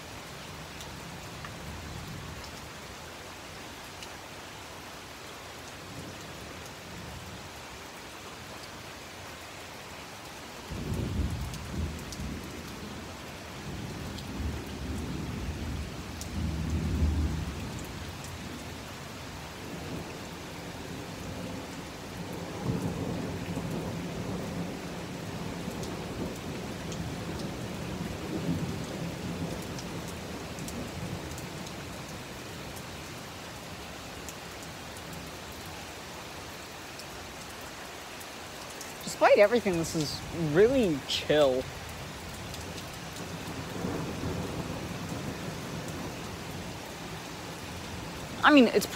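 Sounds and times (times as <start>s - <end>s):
heavy rain: 0.0s - 48.9s
thunder rumbling: 42.6s - 46.4s.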